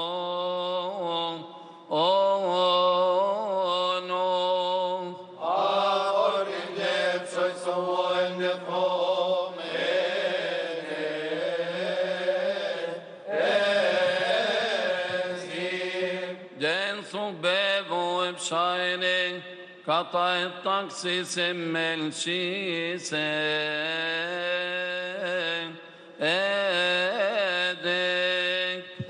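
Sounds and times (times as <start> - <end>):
men's choir chanting: 5.4 - 16.8.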